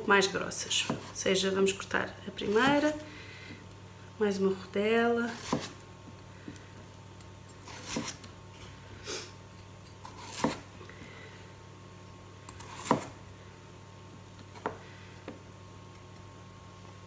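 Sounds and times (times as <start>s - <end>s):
knife slicing potatoes: 0.6s - 1.5s, 2.3s - 3.0s, 5.3s - 5.8s, 7.5s - 8.3s, 10.0s - 10.7s, 12.5s - 13.2s.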